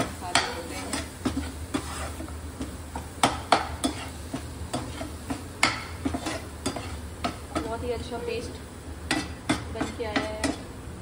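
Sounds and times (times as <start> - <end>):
metal spatula scraping frying pan: 0.0 - 7.8
spices sizzling: 0.0 - 11.0.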